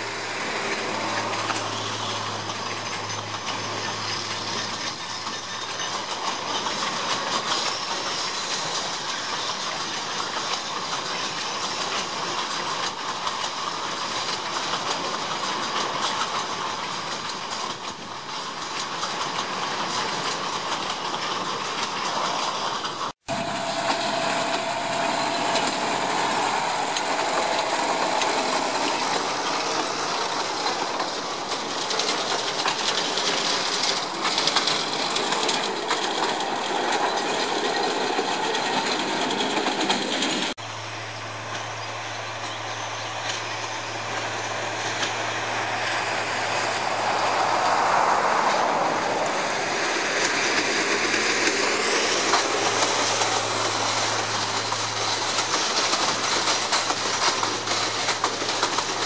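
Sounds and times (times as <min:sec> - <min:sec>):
low diesel engine hum: 0:00.0 - 0:08.5, 0:23.2 - 0:59.0
train wheels on rails: 0:00.0 - 0:59.0.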